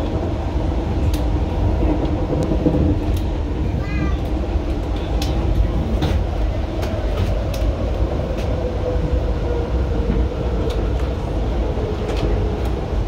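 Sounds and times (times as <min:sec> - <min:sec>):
train rumbling at speed: 0:00.0 - 0:13.0.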